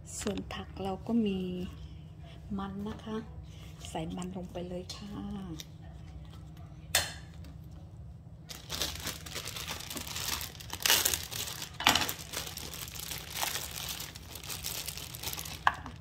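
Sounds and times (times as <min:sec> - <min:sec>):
plastic bag crinkling: 0:08.4 - 0:16.0.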